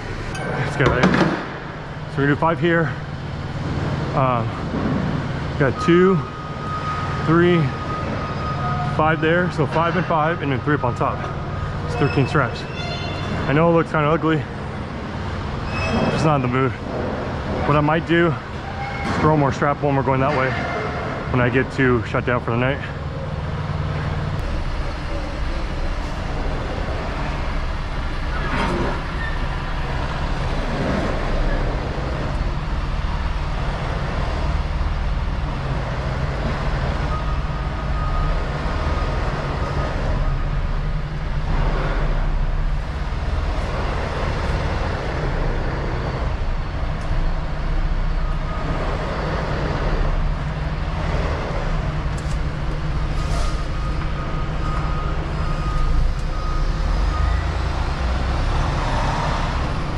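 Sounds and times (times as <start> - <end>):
truck diesel engine rumbling: 0.0 - 59.9.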